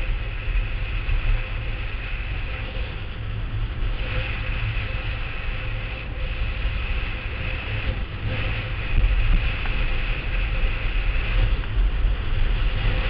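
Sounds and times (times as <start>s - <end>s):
faint steady whine: 0.0s - 13.0s
wheels rumbling: 0.0s - 13.0s
wind buffeting microphone: 0.0s - 13.0s.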